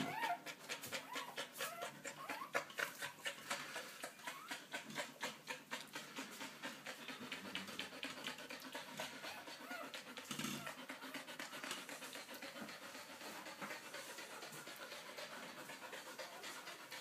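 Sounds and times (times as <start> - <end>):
puppies squeaking: 0.0 - 3.2, 4.0 - 5.6, 9.2 - 11.8
dog panting: 0.0 - 17.0.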